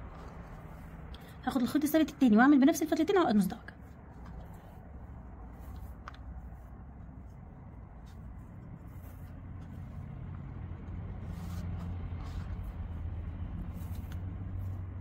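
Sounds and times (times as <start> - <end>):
low motor hum: 4.0 - 15.0.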